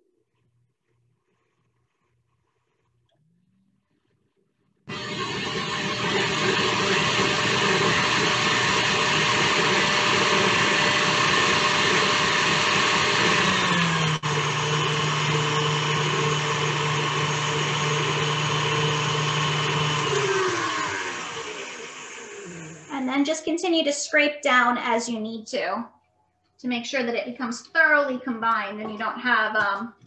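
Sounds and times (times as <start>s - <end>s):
electric mixer motor whine: 4.9s - 23.0s.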